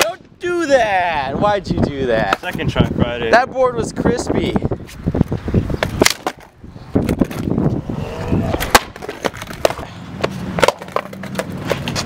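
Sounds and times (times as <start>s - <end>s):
skateboard clacking on ground: 2.2s - 2.7s, 5.8s - 7.8s, 8.4s - 12.0s
skateboard rolling on asphalt: 4.9s - 12.0s.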